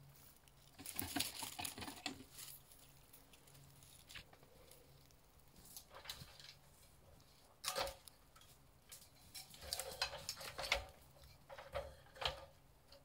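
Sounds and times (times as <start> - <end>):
objects knocking and clattering: 0.6 - 2.7, 7.6 - 13.0.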